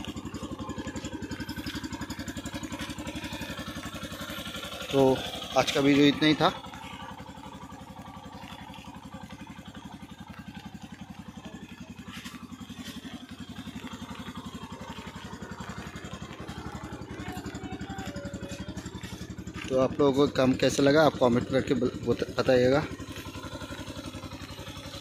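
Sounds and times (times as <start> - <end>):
motorcycle engine idling: 0.0 - 25.0.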